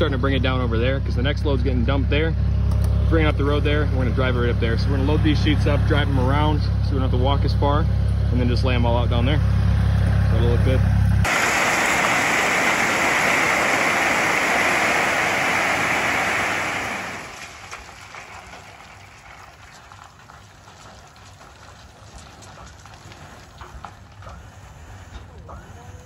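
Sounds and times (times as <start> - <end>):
rock sliding onto pavement: 11.2 - 24.3
stones trickling down: 11.3 - 24.2.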